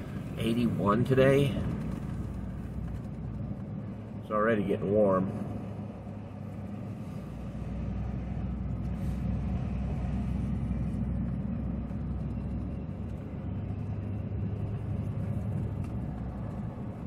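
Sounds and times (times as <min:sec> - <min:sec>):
engine and road rumble: 0:00.0 - 0:17.0.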